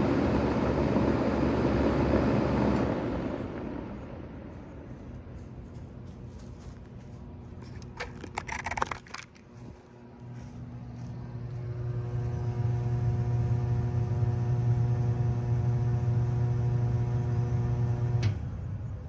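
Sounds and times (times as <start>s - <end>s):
heat pump humming: 0.0s - 19.0s
scuffing noises: 4.6s - 11.7s.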